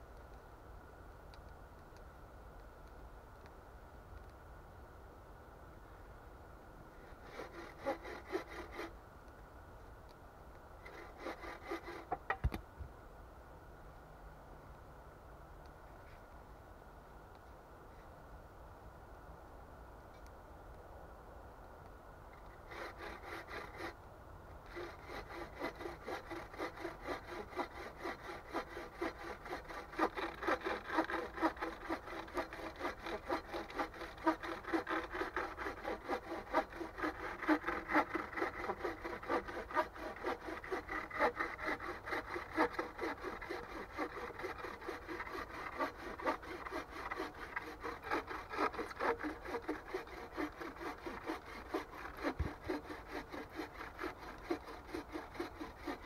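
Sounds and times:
bow saw cutting through log: 0:07.1 - 0:08.9, 0:10.8 - 0:12.4, 0:22.4 - 0:24.0, 0:24.6 - 0:56.0.

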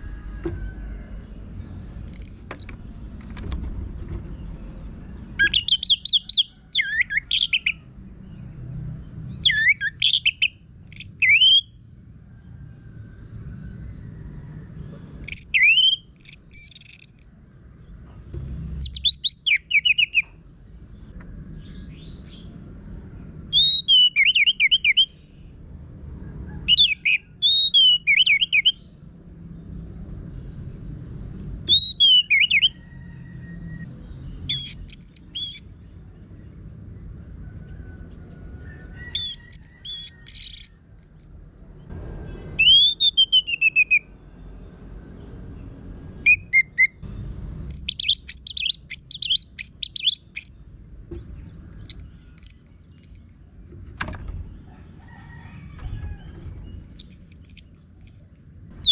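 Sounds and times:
thrush singing whistles and trills: 0:02.1 - 0:02.7, 0:05.4 - 0:07.8, 0:09.3 - 0:11.8, 0:15.2 - 0:17.3, 0:18.8 - 0:20.4, 0:23.5 - 0:25.2, 0:26.7 - 0:28.8, 0:31.7 - 0:32.8, 0:34.5 - 0:35.7, 0:39.1 - 0:41.4, 0:42.6 - 0:44.1, 0:46.2 - 0:47.0, 0:47.7 - 0:50.6, 0:51.7 - 0:53.4, 0:56.6 - 0:58.9.

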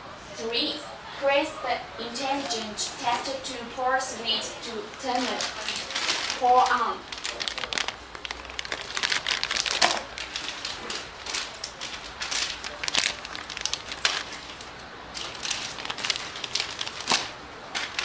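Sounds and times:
irregular crackling and clicking: 0:04.9 - 0:18.0.

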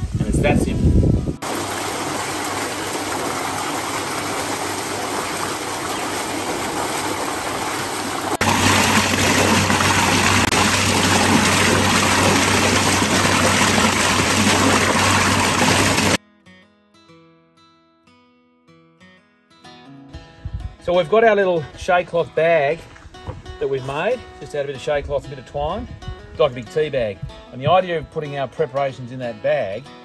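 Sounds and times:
water cascading and splashing: 0:00.0 - 0:16.2.

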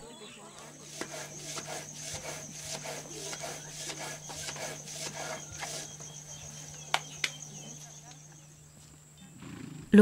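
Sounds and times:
stone grinding strokes: 0:00.6 - 0:08.1.

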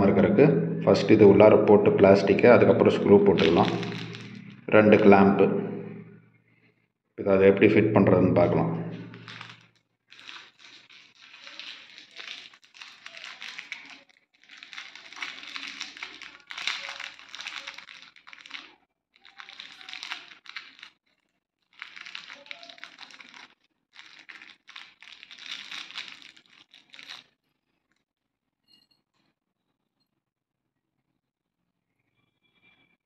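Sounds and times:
plastic packet crinkling: 0:02.0 - 0:06.2, 0:08.4 - 0:21.0, 0:21.6 - 0:27.4.

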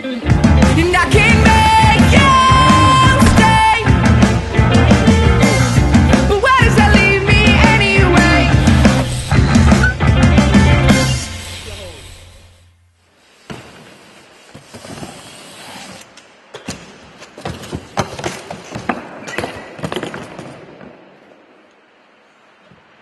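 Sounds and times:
rock music: 0:00.0 - 0:12.6
low background noise: 0:00.0 - 0:23.0.

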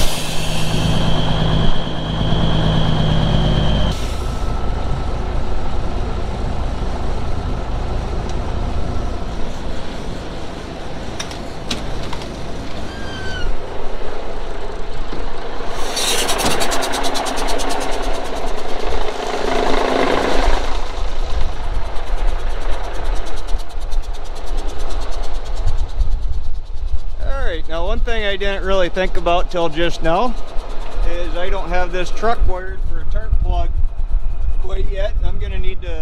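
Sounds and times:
diesel truck engine idling: 0:00.0 - 0:15.6
cab door opening: 0:11.1 - 0:13.6.

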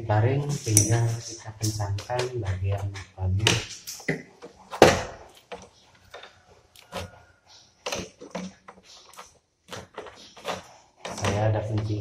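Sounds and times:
wrench clicking on metal fittings: 0:00.6 - 0:01.8.

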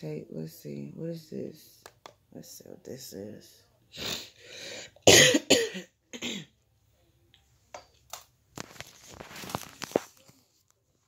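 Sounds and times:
person coughing: 0:05.0 - 0:06.5.

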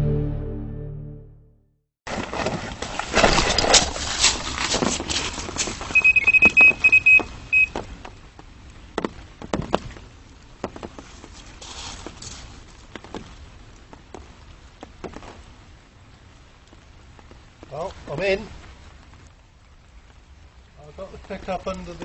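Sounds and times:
rustling: 0:02.1 - 0:15.8
bite alarm short high beeps: 0:06.0 - 0:07.7.

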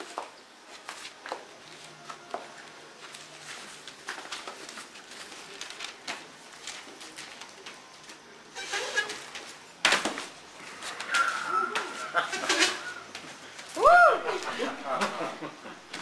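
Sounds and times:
newspaper rustling: 0:00.6 - 0:08.4
person dropping onto newspapers: 0:09.3 - 0:10.3.

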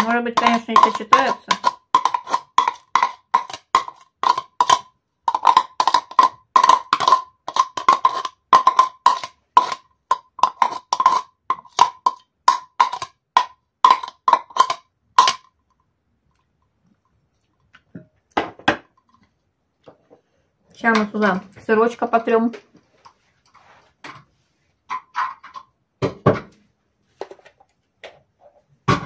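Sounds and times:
metal spoon scraping glass container: 0:00.0 - 0:12.2, 0:12.8 - 0:13.1.

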